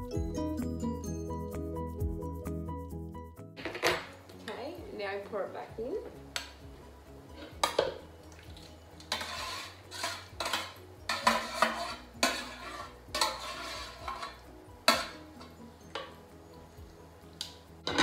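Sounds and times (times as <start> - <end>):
utensil scraping ceramic dish: 9.0 - 15.2.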